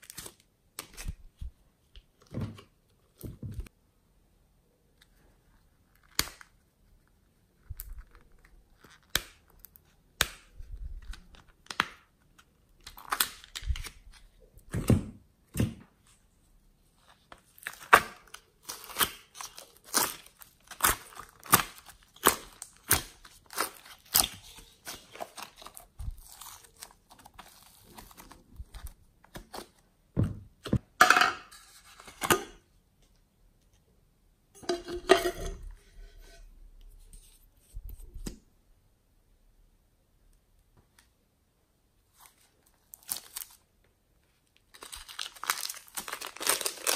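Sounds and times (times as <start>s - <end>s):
clay tearing and crinkling: 5.0s - 14.8s, 17.1s - 29.9s, 44.4s - 46.9s.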